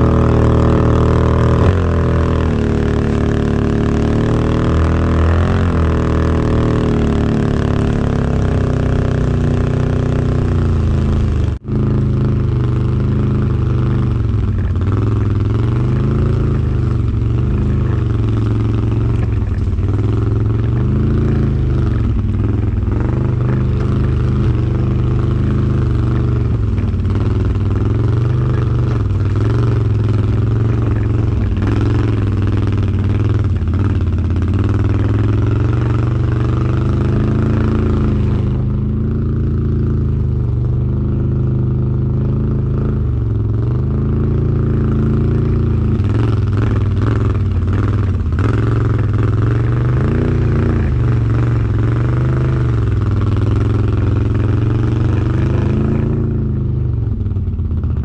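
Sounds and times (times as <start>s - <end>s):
atv engine running: 0.0s - 58.0s
knocks and rattles: 13.3s - 38.7s.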